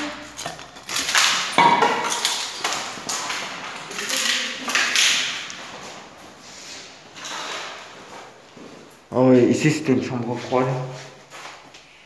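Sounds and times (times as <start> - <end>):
hard objects knocking and clattering: 0.0 - 6.2.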